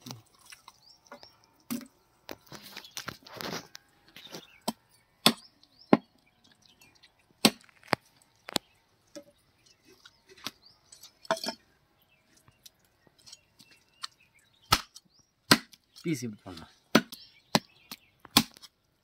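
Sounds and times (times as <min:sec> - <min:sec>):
cleaver chopping on wooden block: 0:15.5 - 0:15.8, 0:16.9 - 0:18.7.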